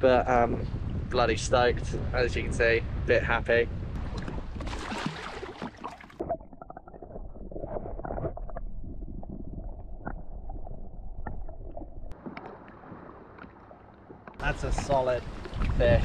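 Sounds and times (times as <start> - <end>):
underwater rumble of moving water: 0.0 - 16.0
camera splashing into water: 4.1 - 6.3.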